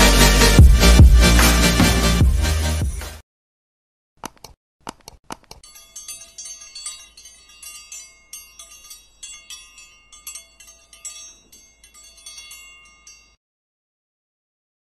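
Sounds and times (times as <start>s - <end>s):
high tinkling chimes: 5.6s - 13.4s.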